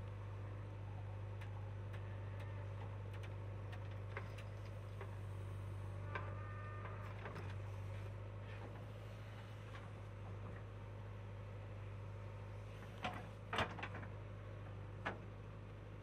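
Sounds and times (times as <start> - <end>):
diesel engine low hum: 0.0 - 16.0
light clicks and ticks: 1.4 - 5.2.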